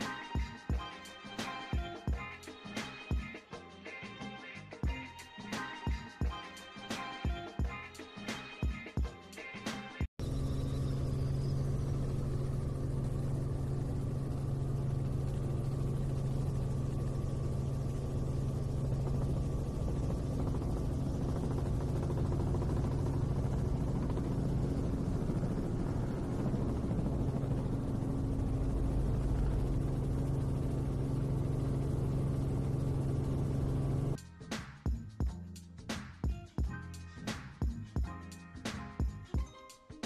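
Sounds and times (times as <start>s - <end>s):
helicopter engine and rotor drone: 10.2s - 35.2s.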